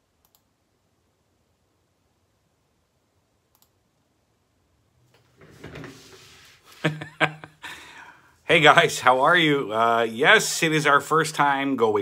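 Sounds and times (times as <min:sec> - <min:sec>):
faint clicks: 0:00.2 - 0:00.5, 0:03.5 - 0:03.8
soft noise: 0:05.0 - 0:07.4.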